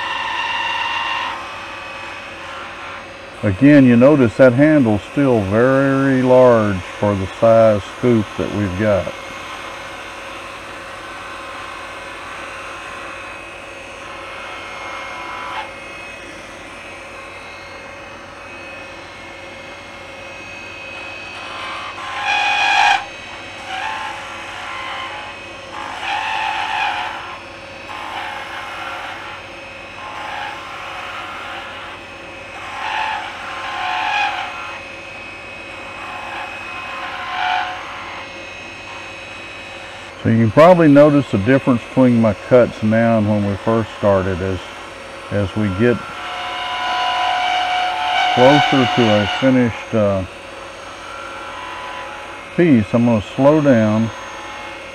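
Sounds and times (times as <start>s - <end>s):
wood lathe humming: 0.0s - 54.9s
gouge cutting wood hiss: 20.8s - 29.4s, 40.6s - 50.3s.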